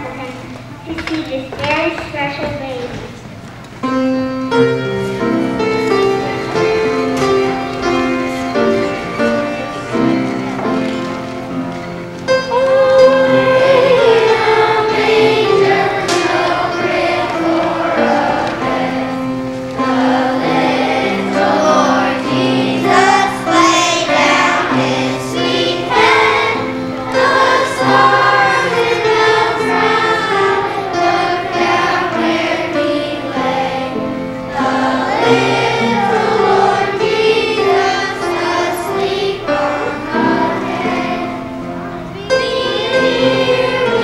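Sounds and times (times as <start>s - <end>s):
musical accompaniment: 3.7s - 44.0s
children's choir singing: 3.8s - 44.0s.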